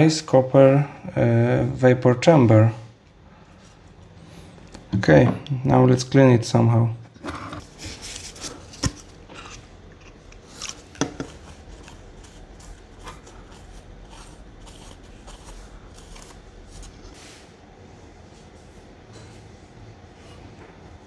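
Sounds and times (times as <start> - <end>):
tissue rubbing and rustling: 11.3 - 17.4.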